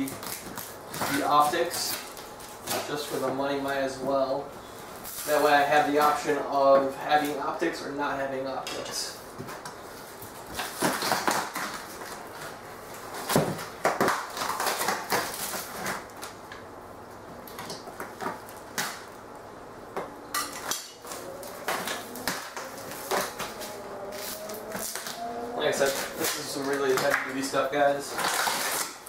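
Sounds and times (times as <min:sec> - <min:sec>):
knife slicing tape and cardboard: 0:13.2 - 0:16.4, 0:28.1 - 0:29.0.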